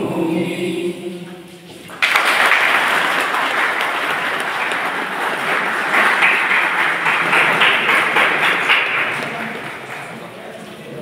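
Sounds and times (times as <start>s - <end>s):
audience applauding: 1.9s - 10.7s.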